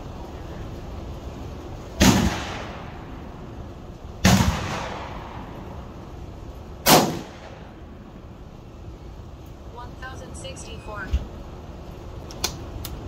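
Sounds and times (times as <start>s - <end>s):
gunshots with echo: 2.0s - 3.0s, 4.2s - 5.5s, 6.8s - 7.7s.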